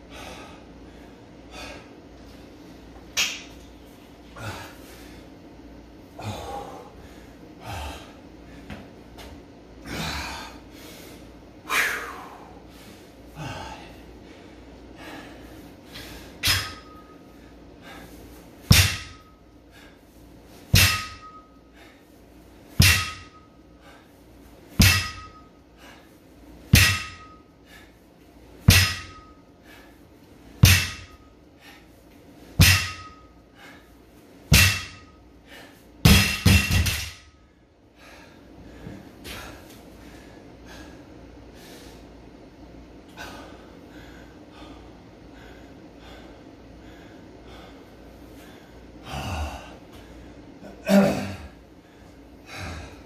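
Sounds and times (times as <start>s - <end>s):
heavy breathing: 0.0s - 2.1s, 4.2s - 5.5s, 6.1s - 8.9s, 9.8s - 20.5s, 21.2s - 26.4s, 32.8s - 36.0s, 43.1s - 53.0s
metallic ring of bar and plates: 16.4s - 17.3s, 18.7s - 19.5s, 20.7s - 21.7s, 22.8s - 23.7s, 24.8s - 25.6s, 26.8s - 27.6s, 28.7s - 29.5s, 30.6s - 31.4s, 32.6s - 33.4s, 34.5s - 35.2s, 36.1s - 37.3s
barbell thudding on rubber mats: 18.7s - 19.3s, 20.7s - 21.4s, 22.8s - 23.4s, 24.8s - 25.4s, 26.8s - 27.4s, 28.7s - 29.3s, 30.6s - 31.2s, 32.6s - 33.2s, 34.5s - 35.1s, 36.0s - 37.3s.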